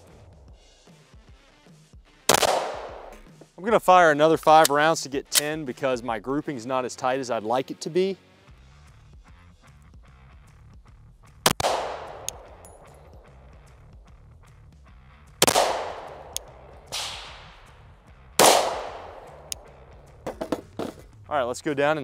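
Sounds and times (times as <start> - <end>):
pistol shots ringing: 2.3 - 3.3, 11.5 - 13.2, 15.4 - 17.7, 18.4 - 19.7.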